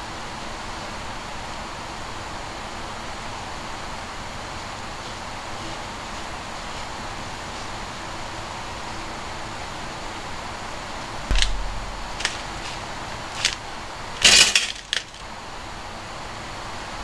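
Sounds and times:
thump: 11.3 - 13.6.

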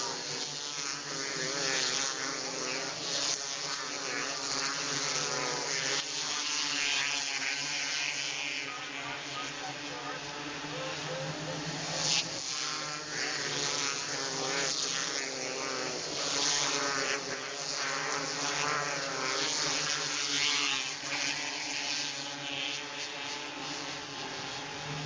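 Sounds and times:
racing car engines revving: 6.7 - 16.3, 22.0 - 25.0.

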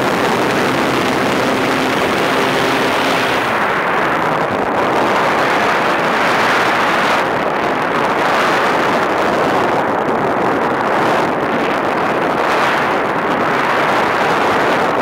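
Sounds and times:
airflow rushing over camera: 0.0 - 6.6.

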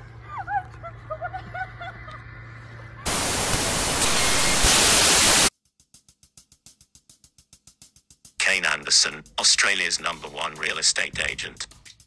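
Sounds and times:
static hiss: 3.1 - 5.5
soft rapid ticks: 5.6 - 12.0.

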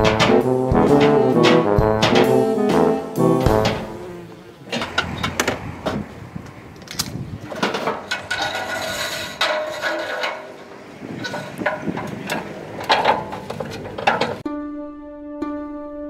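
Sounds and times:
ladder knocks and clanks: 0.0 - 4.1, 7.4 - 14.4
buzzing metal scrape: 0.0 - 5.2, 8.0 - 14.4
tools rattling in toolbox: 6.8 - 14.4.

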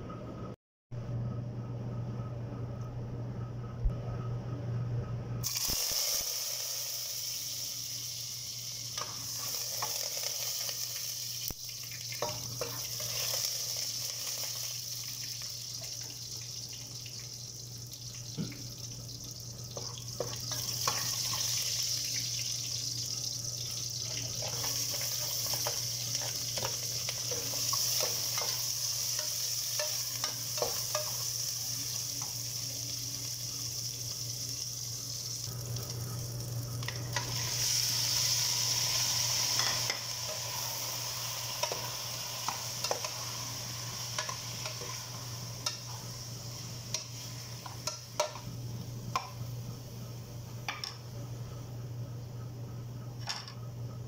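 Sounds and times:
low hum: 0.0 - 5.4
onions sizzling in hot oil: 5.4 - 50.1.

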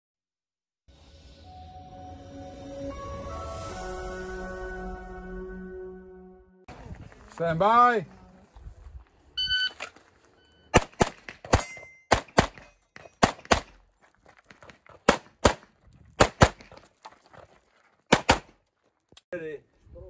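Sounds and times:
shot timer beep: 9.4 - 9.8
short ringing tone: 9.4 - 10.7
pistol shots: 10.7 - 13.8, 15.0 - 16.7, 18.1 - 18.5.

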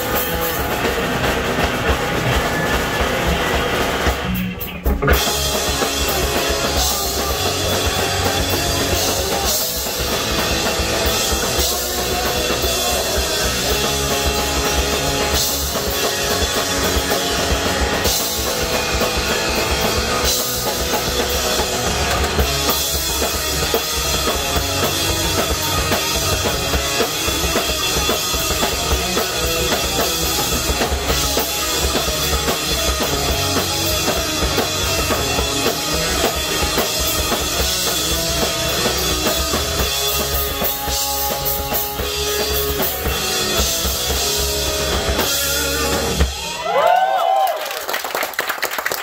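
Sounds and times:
drum kit: 0.0 - 49.0
electric guitars: 0.0 - 49.0
punk band playing live: 0.0 - 49.0.

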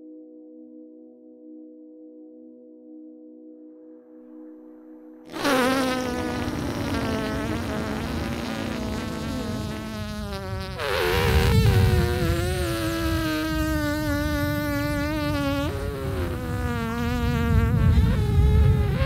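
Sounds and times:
insect-like buzzing: 5.3 - 19.0.

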